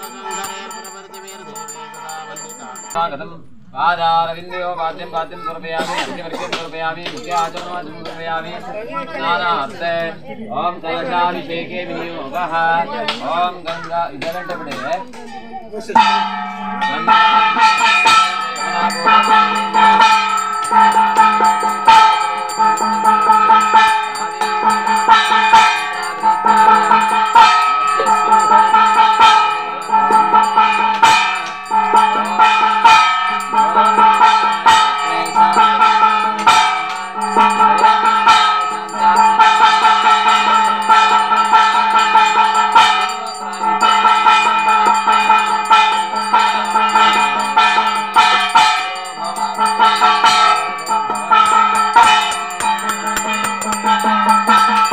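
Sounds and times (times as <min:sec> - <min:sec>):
ringing metallic tones: 0:00.0 - 0:03.0, 0:15.9 - 0:54.9
drum strokes: 0:15.9 - 0:54.9.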